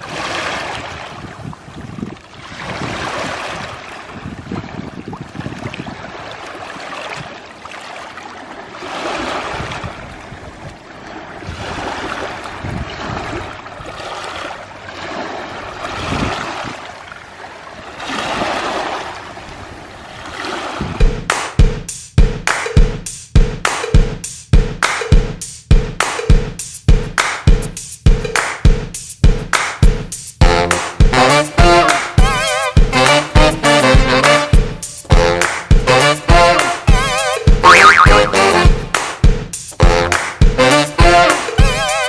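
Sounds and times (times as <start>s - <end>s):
wind rumbling on microphone: 0.0s - 6.5s, 9.2s - 14.2s, 15.6s - 16.8s, 19.4s - 21.2s
waves washing on stony shore: 0.0s - 21.0s.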